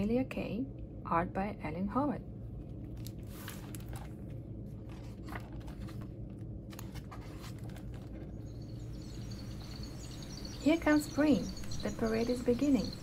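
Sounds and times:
low steady hum: 0:00.0 - 0:13.0
book pages turning: 0:02.6 - 0:08.4
faint high birdsong chirping: 0:08.2 - 0:13.0.

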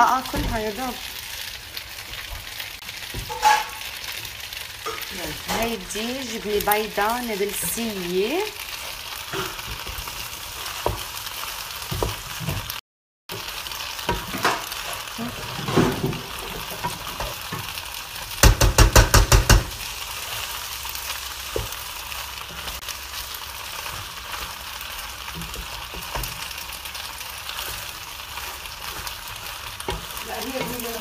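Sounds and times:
pasta sizzling in a pan: 0:00.0 - 0:31.0
wooden spoon stirring: 0:21.5 - 0:31.0.

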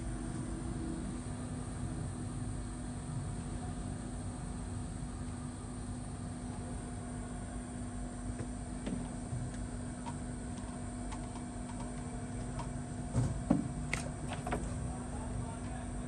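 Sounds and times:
electrical hum with fan hiss: 0:00.0 - 0:16.0.

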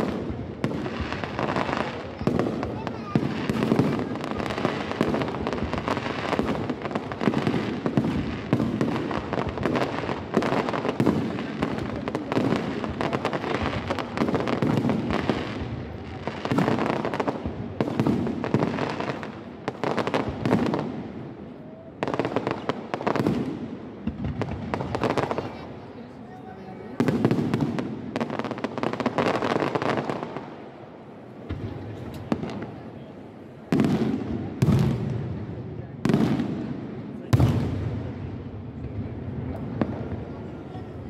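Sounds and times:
fireworks bursting and crackling: 0:00.0 - 0:41.0.

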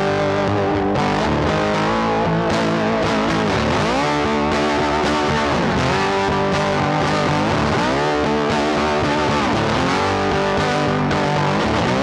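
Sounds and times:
bass: 0:00.0 - 0:12.0
distorted electric guitar: 0:00.0 - 0:12.0.

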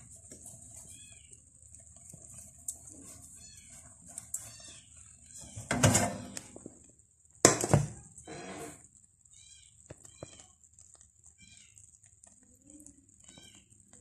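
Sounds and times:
metal frying pan clattering: 0:05.7 - 0:06.4, 0:07.4 - 0:08.0.

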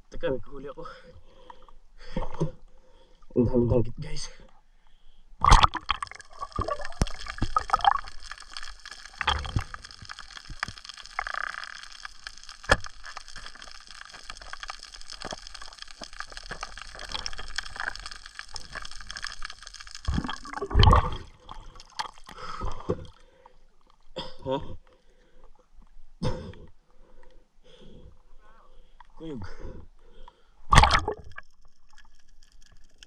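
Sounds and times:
water gurgling and sloshing: 0:05.4 - 0:24.0
gush of water: 0:05.6 - 0:23.0
sharp clicks and crackles: 0:05.7 - 0:21.0, 0:30.2 - 0:33.0.

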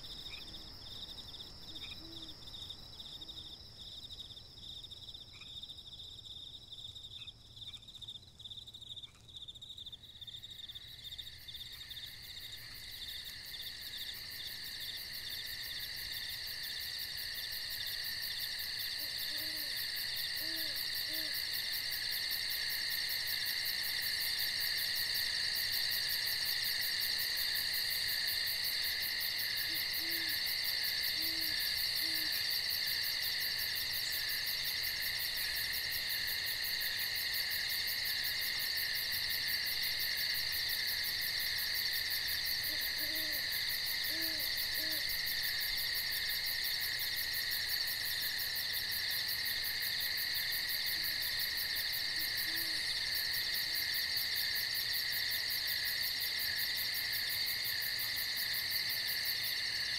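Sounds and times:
night insects trilling: 0:00.0 - 0:59.9
owl hooting: 0:19.0 - 0:19.8, 0:20.4 - 0:21.4, 0:29.7 - 0:30.4, 0:31.1 - 0:32.4, 0:42.7 - 0:43.5, 0:44.1 - 0:45.1.

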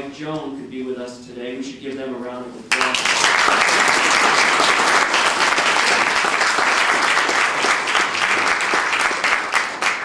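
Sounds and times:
crowd applauding: 0:02.7 - 0:10.0.

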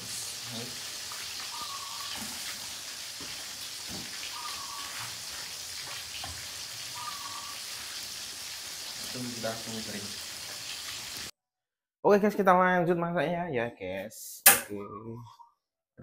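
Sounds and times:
oil sizzling in wok: 0:00.0 - 0:11.3
faint chirp: 0:07.0 - 0:07.6, 0:14.7 - 0:15.6.

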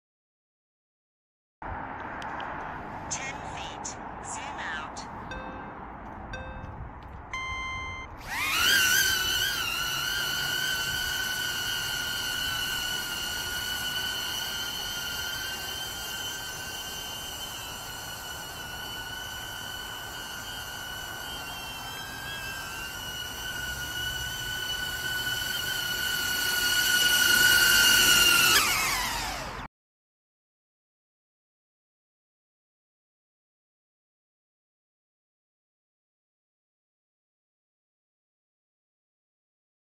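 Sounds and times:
drone propellers whining: 0:03.6 - 0:29.7.

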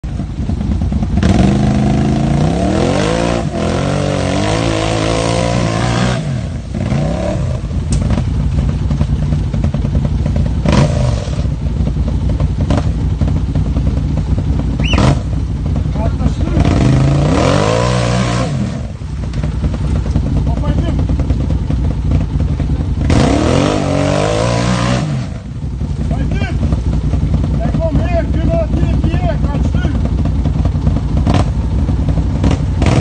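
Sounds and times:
utility vehicle engine revving: 0:00.0 - 0:33.0.

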